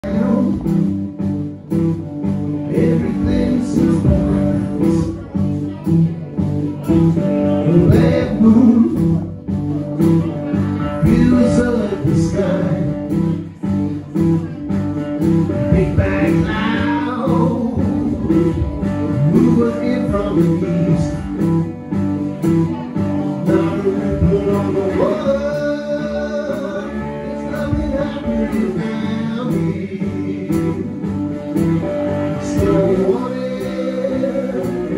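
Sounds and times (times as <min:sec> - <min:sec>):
guitar picking: 0:00.0 - 0:34.9
drums and cymbals: 0:00.1 - 0:25.1.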